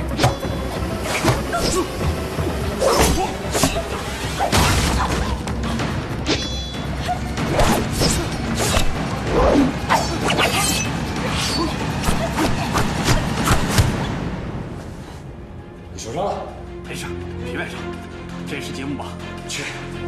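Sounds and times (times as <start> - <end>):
action music: 0.0 - 20.0
punches and blows: 11.6 - 14.1.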